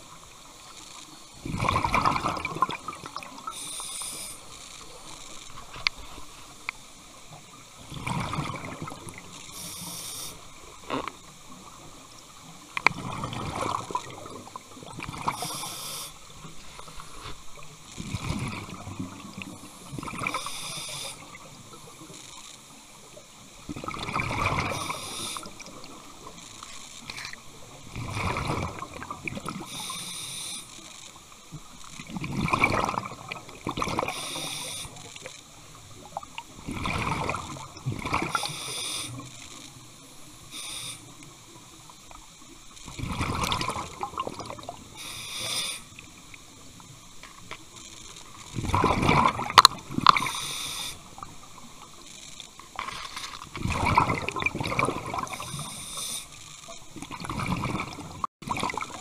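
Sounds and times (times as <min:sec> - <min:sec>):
exhaled bubbles rushing: 0:01.4 - 0:03.6, 0:07.8 - 0:09.4, 0:12.9 - 0:15.5, 0:18.0 - 0:20.5, 0:23.7 - 0:26.0, 0:27.9 - 0:29.6, 0:32.0 - 0:34.2, 0:36.1 - 0:38.5, 0:42.9 - 0:44.8, 0:48.6 - 0:50.4, 0:53.5 - 0:55.7, 0:57.0 - 0:59.0
regulator hiss on inhale: 0:03.4 - 0:07.1, 0:09.4 - 0:10.8, 0:15.3 - 0:17.7, 0:19.4 - 0:22.5, 0:24.6 - 0:25.8, 0:29.6 - 0:31.2, 0:34.0 - 0:35.3, 0:38.3 - 0:39.5, 0:40.2 - 0:41.4, 0:44.9 - 0:46.1, 0:50.0 - 0:51.2, 0:55.2 - 0:56.7.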